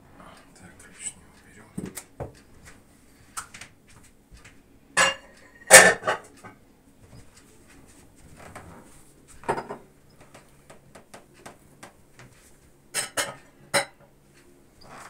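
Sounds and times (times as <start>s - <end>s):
light clicks and ticks: 10.1s - 12.5s.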